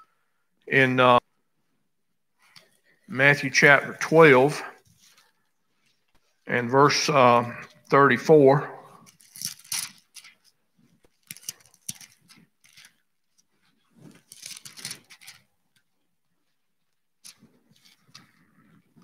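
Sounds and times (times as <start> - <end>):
pages rustling: 4.8 - 6.4, 9.0 - 15.9, 17.2 - 19.0.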